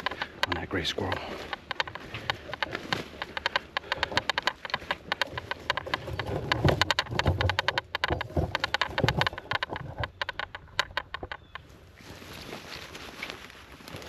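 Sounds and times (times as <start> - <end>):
footsteps crunching dry leaves: 0.0 - 3.4, 11.6 - 14.0.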